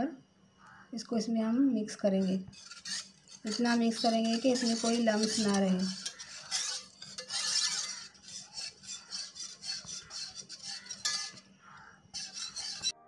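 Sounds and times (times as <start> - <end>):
wire whisk clinking in steel bowl: 2.5 - 11.5, 12.2 - 13.0.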